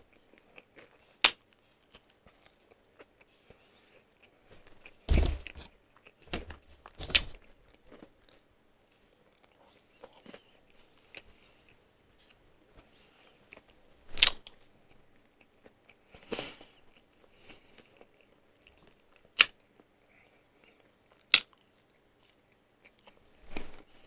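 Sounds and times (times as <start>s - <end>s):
chewing crispy chicken: 0.0s - 5.0s, 7.7s - 12.4s.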